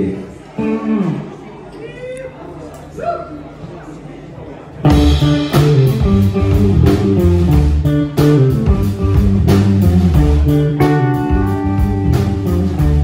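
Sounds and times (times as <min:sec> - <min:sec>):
rock band playing: 0:04.9 - 0:13.0.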